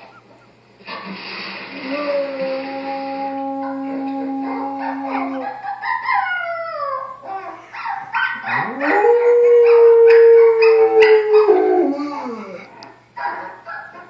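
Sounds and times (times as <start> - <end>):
dog howling: 1.8 - 7.5, 8.2 - 12.7.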